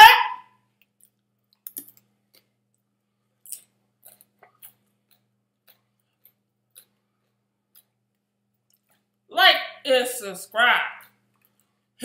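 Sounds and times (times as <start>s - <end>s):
faint electrical hum: 0.0s - 12.0s
person chewing food: 0.8s - 9.3s.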